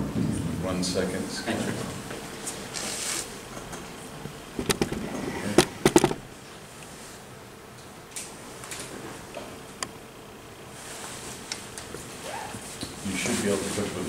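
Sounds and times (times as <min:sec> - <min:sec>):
sharp clicks and knocks: 0:04.6 - 0:05.0, 0:05.6 - 0:06.2.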